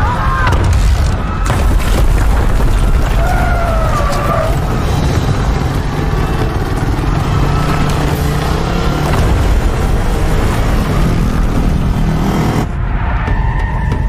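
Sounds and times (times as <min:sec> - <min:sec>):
booms of collapsing buildings: 0:00.0 - 0:14.0
deep rumbling: 0:00.0 - 0:14.0
steady engine hum: 0:03.4 - 0:14.0.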